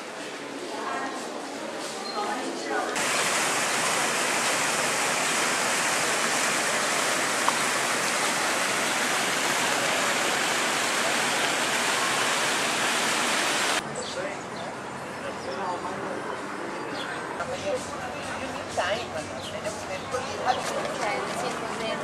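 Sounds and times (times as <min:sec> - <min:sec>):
fountain jets splashing into pool: 0:03.0 - 0:13.8, 0:20.4 - 0:22.0.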